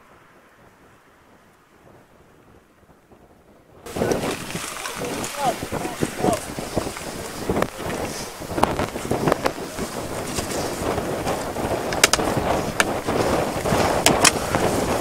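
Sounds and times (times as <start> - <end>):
wind buffeting microphone: 0.0 - 15.0
sharp clicks: 11.9 - 13.0.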